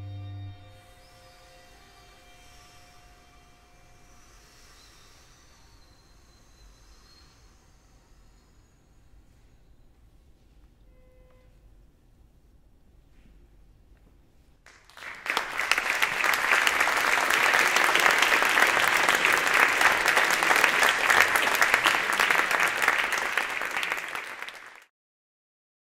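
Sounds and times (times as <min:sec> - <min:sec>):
audience applauding: 0:14.7 - 0:24.9.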